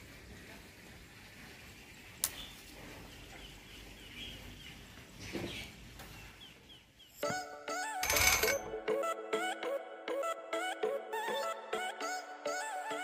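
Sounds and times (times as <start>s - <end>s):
birds chirping: 2.3s - 7.3s.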